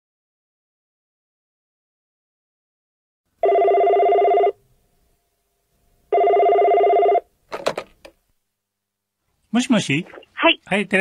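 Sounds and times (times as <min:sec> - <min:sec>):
telephone ringing: 0:03.4 - 0:04.6, 0:06.1 - 0:07.3.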